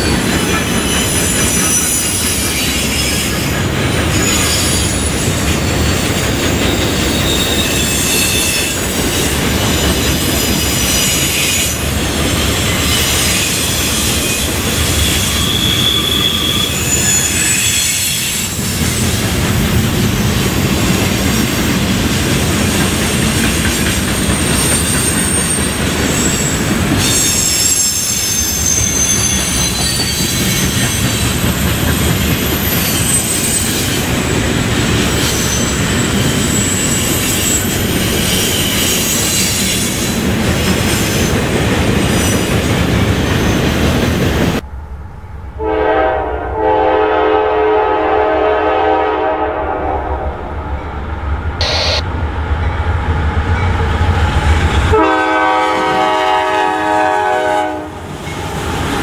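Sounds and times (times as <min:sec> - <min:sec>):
high wheel squeal: 0:00.0 - 0:19.0, 0:24.2 - 0:31.6, 0:32.2 - 0:34.0, 0:35.1 - 0:40.2
train wheels rumbling on rail: 0:00.0 - 0:59.0
diesel locomotive horn: 0:45.6 - 0:50.5, 0:54.9 - 0:58.0.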